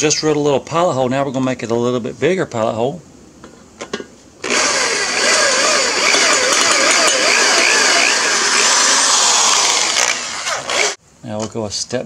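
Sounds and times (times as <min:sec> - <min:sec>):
electric drill boring metal: 0:04.4 - 0:11.0.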